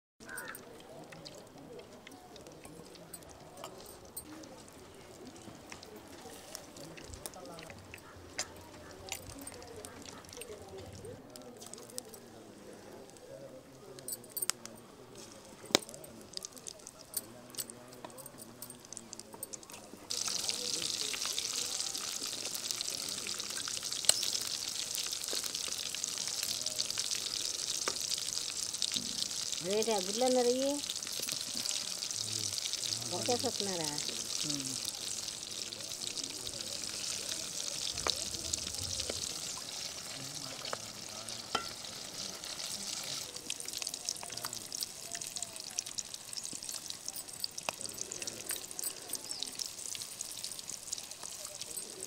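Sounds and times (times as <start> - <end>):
oil dripping into pan: 0.2 - 12.2, 15.7 - 52.0
deep-frying sizzle: 0.2 - 12.3, 15.0 - 52.0
spoon clinking on metal plate: 2.7 - 4.3, 41.5 - 41.9.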